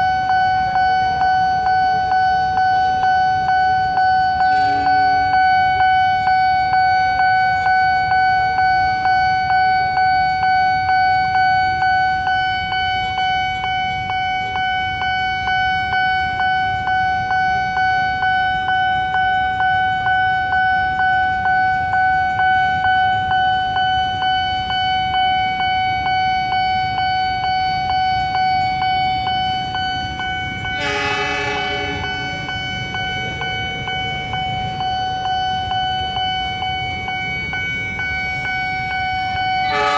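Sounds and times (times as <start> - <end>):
level crossing alarm dinging: 0.0 - 39.9
low rumble of traffic: 0.0 - 39.9
horn: 30.8 - 32.2, 39.6 - 39.9.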